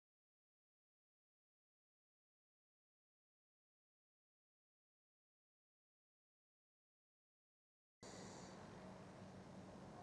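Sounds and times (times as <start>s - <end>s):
faint steady hiss: 8.0s - 10.0s.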